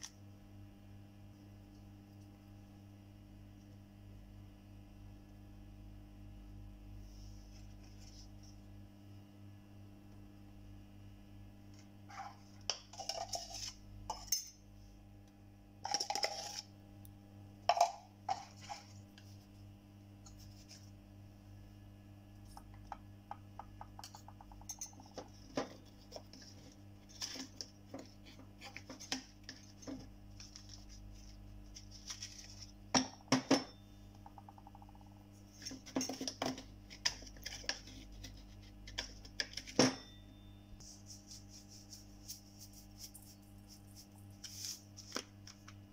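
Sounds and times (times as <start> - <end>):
steady low hum: 0.0 - 45.9.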